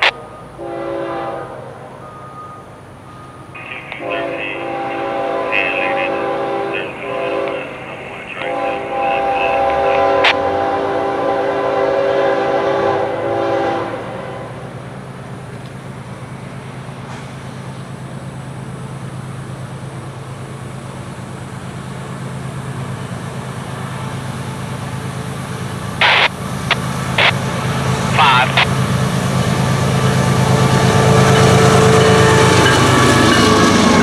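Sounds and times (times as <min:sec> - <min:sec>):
diesel locomotive engine rumble: 0:00.0 - 0:34.0
locomotive horn chord: 0:00.1 - 0:01.8, 0:03.9 - 0:14.7.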